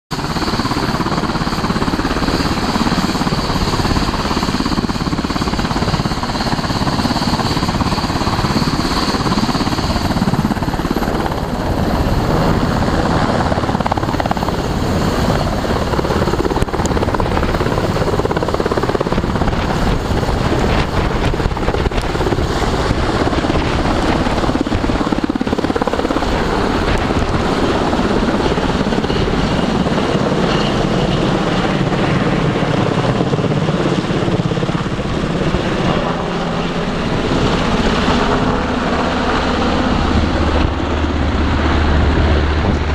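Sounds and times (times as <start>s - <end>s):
helicopter rotor and turbine: 0.1s - 42.9s.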